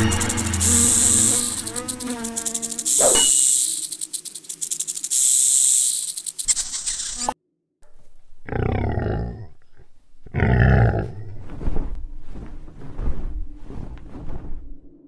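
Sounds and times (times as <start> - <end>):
dinosaur roars: 8.4 - 11.4.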